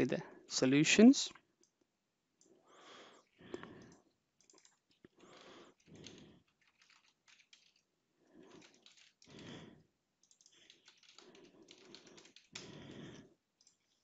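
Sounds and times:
typing on computer keyboard: 3.6 - 9.6, 10.2 - 14.0.

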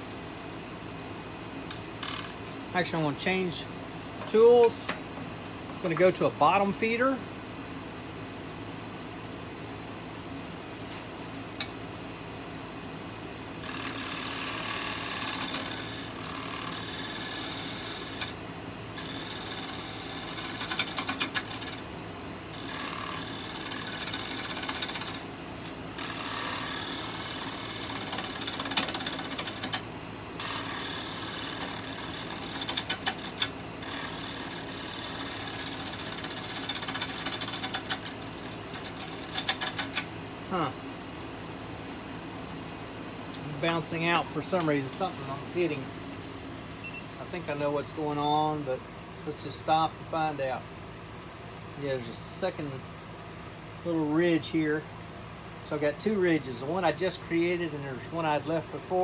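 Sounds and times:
lathe motor hum: 13.6 - 40.7
tool hissing cutting wood: 30.4 - 38.0.

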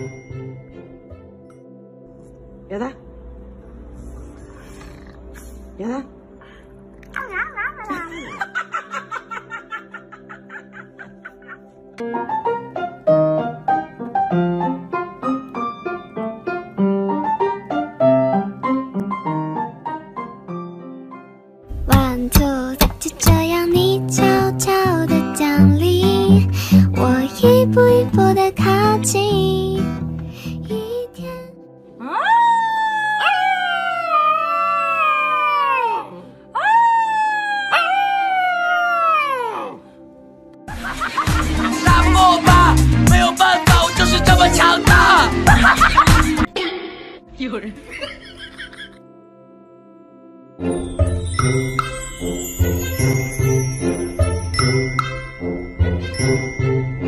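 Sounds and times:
piano melody: 0.0 - 32.4, 47.2 - 57.0
puppy howling: 32.0 - 39.8.

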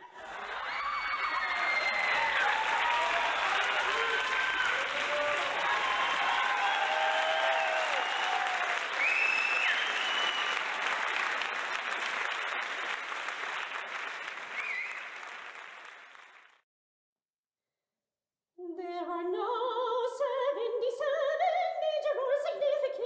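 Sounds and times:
audience applauding and cheering: 0.0 - 16.6
whistle-like calls: 9.0 - 10.6, 14.5 - 15.1.

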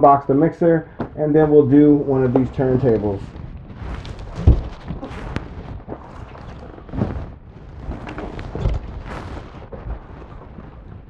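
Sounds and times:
cardboard scraping and rustling: 2.4 - 11.0.

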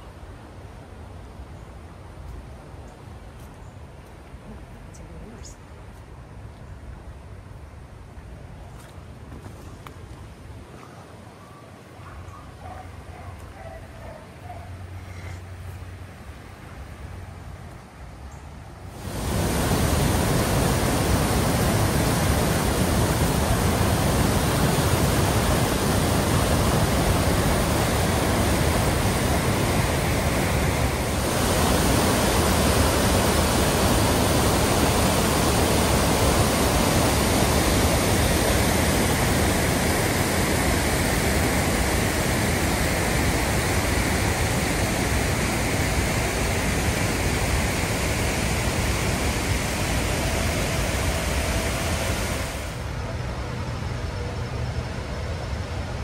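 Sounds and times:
water rushing over waterfall: 18.9 - 52.9.

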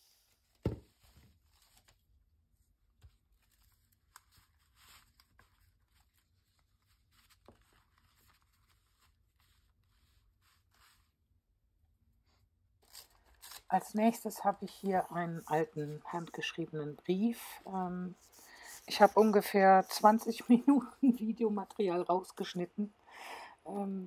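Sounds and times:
paper rustling and crinkling: 0.1 - 11.2.

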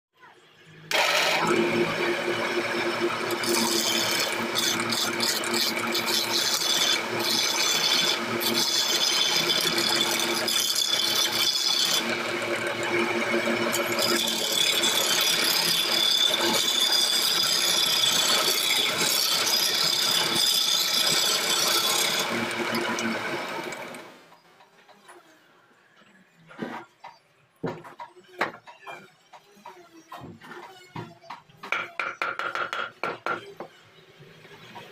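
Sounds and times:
wood lathe running: 0.9 - 24.3, 31.7 - 33.4.

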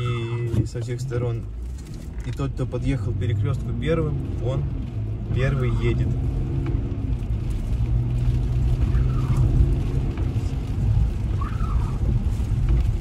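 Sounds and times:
engine and tyre rumble: 0.0 - 13.0
windshield wipers squeaking: 8.7 - 13.0.

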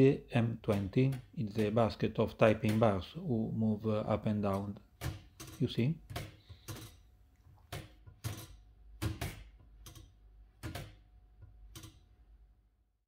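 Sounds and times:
typewriter shift mechanism clunking: 4.3 - 7.0, 7.7 - 11.0.

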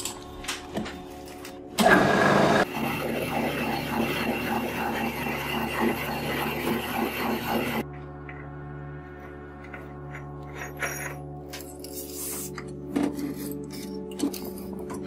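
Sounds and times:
metal lathe cutting steel: 1.9 - 7.8.

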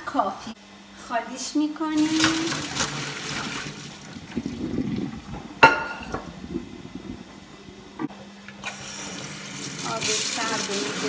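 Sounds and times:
water pouring and splashing: 2.0 - 5.5.

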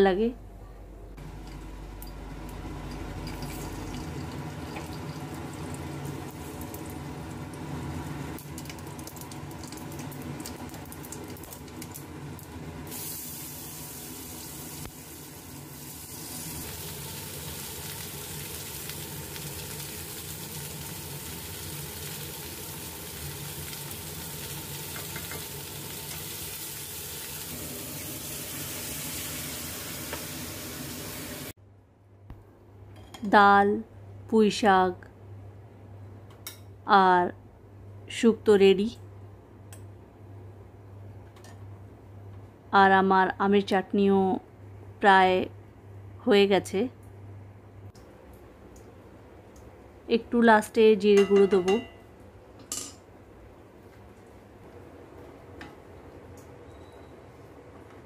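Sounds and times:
food sizzling in oil: 3.0 - 31.6
seeds crackling and popping in oil: 8.3 - 12.5.

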